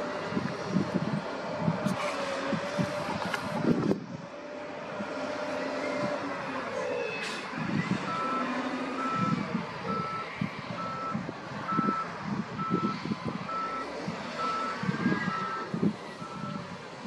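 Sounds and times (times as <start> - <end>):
diesel engines running: 0.0 - 17.0
reversing alarm beeping: 8.0 - 12.9, 13.5 - 16.6.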